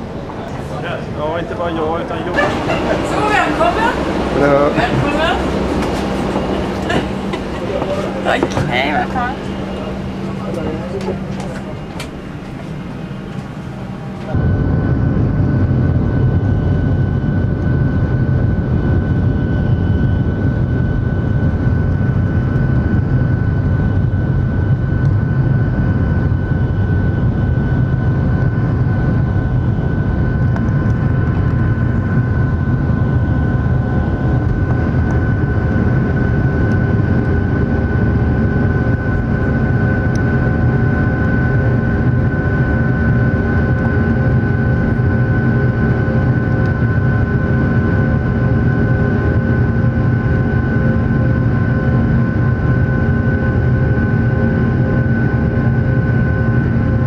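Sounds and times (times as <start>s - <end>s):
cabin hum: 0.0s - 17.4s
jet engines roaring with whine: 0.0s - 57.0s.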